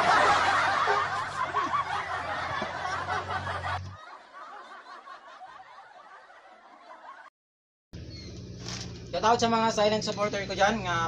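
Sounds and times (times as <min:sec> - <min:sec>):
person snickering laughter: 0:00.0 - 0:06.4.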